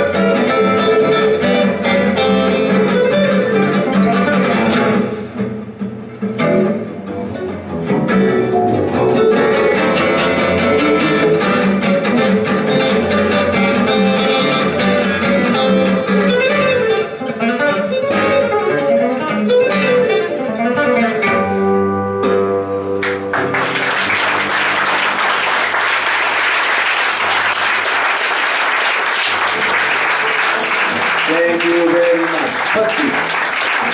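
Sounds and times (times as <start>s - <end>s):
acoustic guitars and double bass: 0.0s - 33.9s
audience applause: 23.0s - 33.9s.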